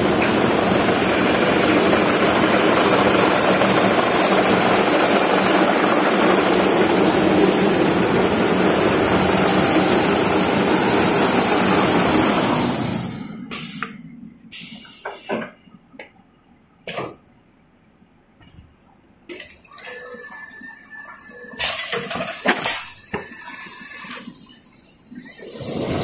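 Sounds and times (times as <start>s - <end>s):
rewinding machine running: 0.0s - 13.1s.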